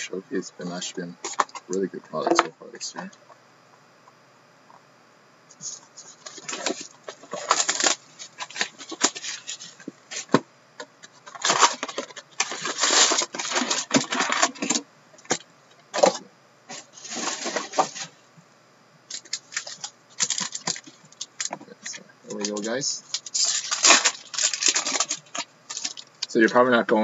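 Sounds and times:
foil packs crinkling and rustling: 5.6 - 10.4, 11.0 - 18.2, 19.1 - 26.6.

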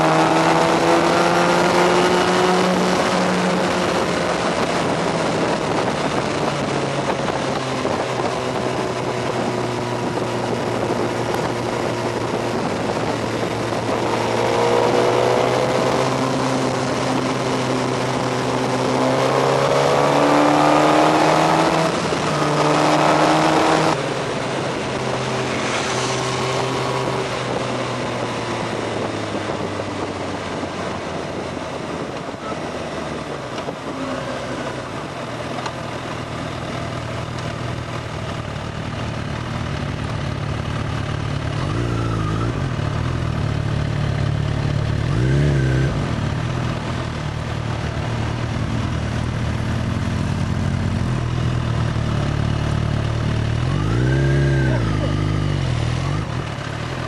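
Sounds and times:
wind rush: 0.0 - 35.4
motorcycle engine accelerating: 0.0 - 57.0.

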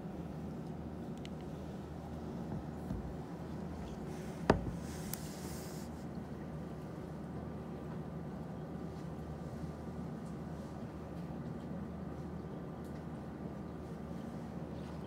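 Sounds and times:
low room hum: 0.0 - 15.0
soft hiss: 3.9 - 6.2.

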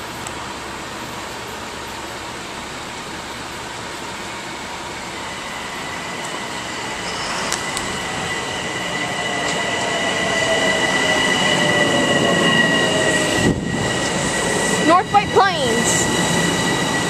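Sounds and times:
electric train pulling in: 0.0 - 17.0
high whine: 1.5 - 17.0
train motor tones sliding down: 5.7 - 14.2.

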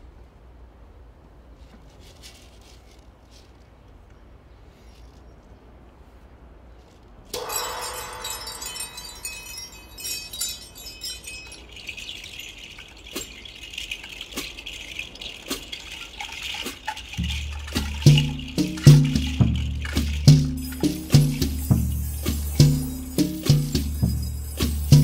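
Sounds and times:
high rattling hiss: 7.4 - 25.0
struck metal chiming: 7.4 - 25.0
drum kit playing: 17.2 - 25.0.

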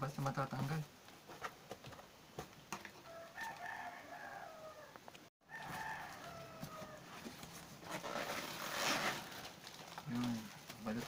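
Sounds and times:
rooster crowing: 3.0 - 7.3.

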